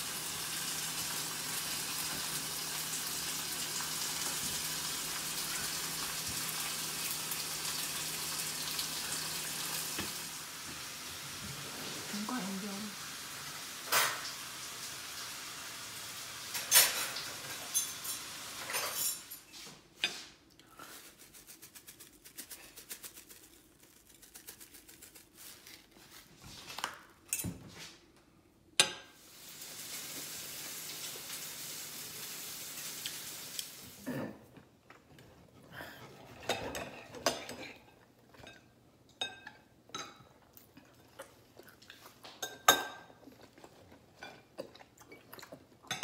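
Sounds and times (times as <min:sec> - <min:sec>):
plates and cutlery clinking: 0:13.9 - 0:14.4, 0:16.5 - 0:20.3.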